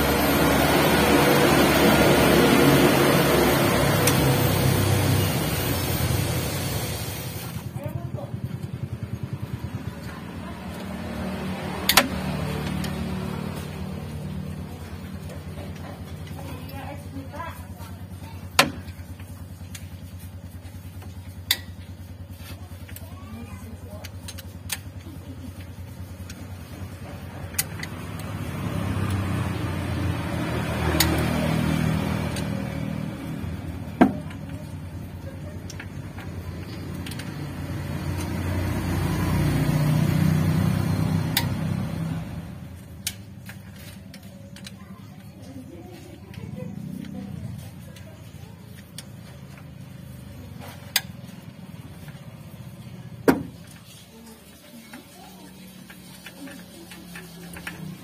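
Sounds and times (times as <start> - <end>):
vehicle passing: 0.0 - 18.6, 25.0 - 58.0
low engine hum: 0.0 - 58.0
metal tools clinking on engine: 42.6 - 58.0.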